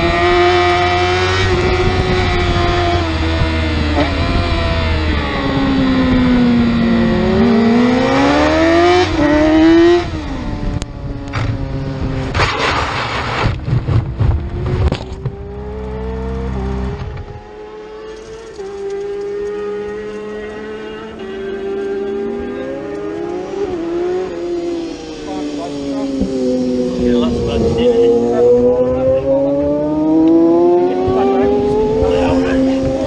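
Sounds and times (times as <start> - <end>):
motorcycle engine revving: 0.0 - 33.0
motorcycle scraping and tumbling: 11.3 - 33.0.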